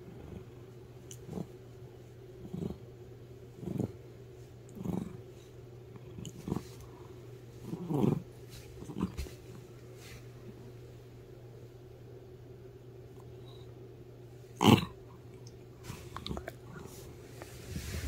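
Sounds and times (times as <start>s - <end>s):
cat growling: 0.0s - 1.6s, 2.4s - 2.8s, 3.6s - 4.0s, 4.7s - 5.3s, 6.0s - 9.2s, 14.6s - 15.0s
steady low hum: 0.0s - 18.0s.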